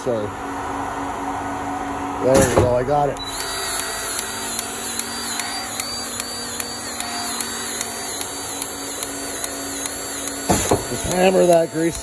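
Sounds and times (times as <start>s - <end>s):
cordless grease gun motor pumping: 3.2s - 12.0s.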